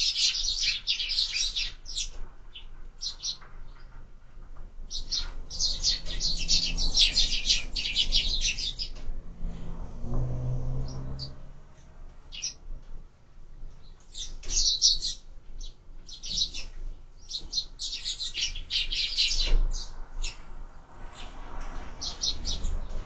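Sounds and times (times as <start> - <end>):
sparrows chirping: 0.0 - 4.0, 4.9 - 9.1, 10.3 - 11.4, 12.3 - 12.6, 13.7 - 23.0.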